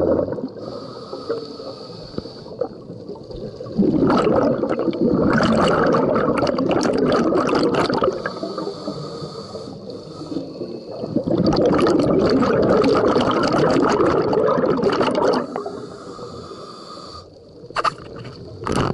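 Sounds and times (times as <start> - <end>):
exhaled bubbles rushing: 0.0 - 0.7, 2.5 - 8.6, 10.9 - 15.8
diver inhaling through regulator: 0.5 - 2.8, 7.9 - 11.4, 15.2 - 17.4.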